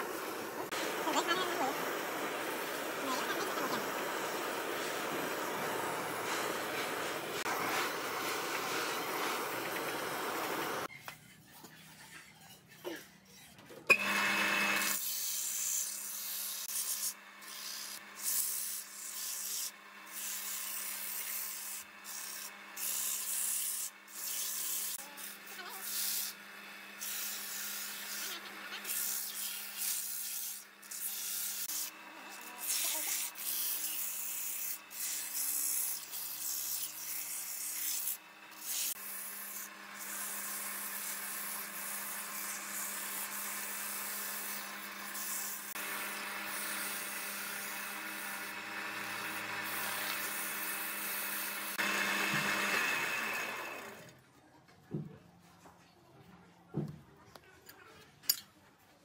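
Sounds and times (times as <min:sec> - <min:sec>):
lathe hum: 0:00.0 - 0:10.9, 0:13.9 - 0:15.1, 0:37.4 - 0:54.1
sandpaper rubbing wood: 0:27.0 - 0:52.6.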